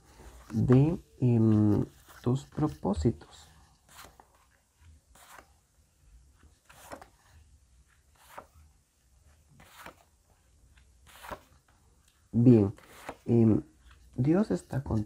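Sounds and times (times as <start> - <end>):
cards sliding on table: 11.0 - 11.5.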